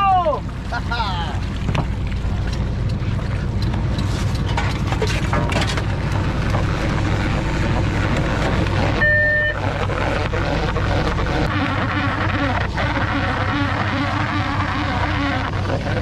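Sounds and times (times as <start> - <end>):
boat engine droning: 0.0 - 16.0
short high beep: 9.0 - 9.6.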